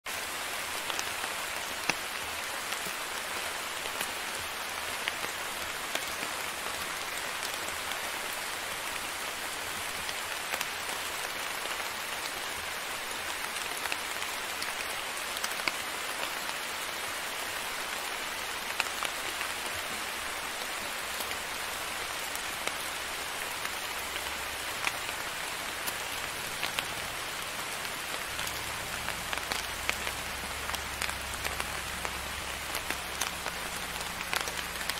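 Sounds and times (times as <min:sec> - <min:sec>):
steady rain falling: 0:00.1 - 0:34.9.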